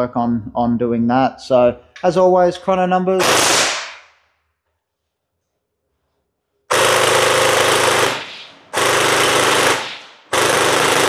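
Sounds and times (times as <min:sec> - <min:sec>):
gel blaster firing full auto: 0:03.2 - 0:04.0, 0:06.7 - 0:11.0.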